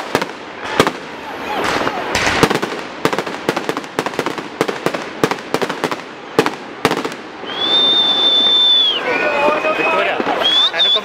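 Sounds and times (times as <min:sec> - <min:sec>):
fireworks bangs and cracks: 0:00.0 - 0:08.1, 0:09.4 - 0:10.7
high steady whistle: 0:07.4 - 0:11.0.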